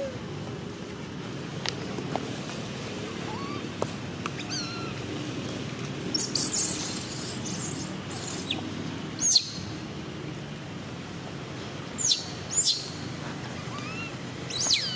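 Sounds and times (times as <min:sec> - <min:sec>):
baby monkey screaming: 0:03.1 - 0:03.7, 0:04.4 - 0:05.0, 0:06.1 - 0:08.6, 0:13.6 - 0:14.9.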